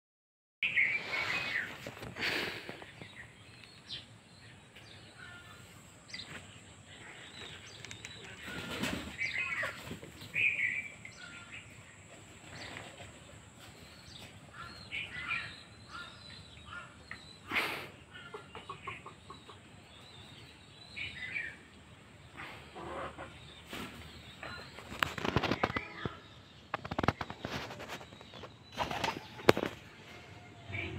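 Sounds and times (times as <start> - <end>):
chickens clucking: 5.6 - 14.5, 17.1 - 20.5, 21.6 - 30.9.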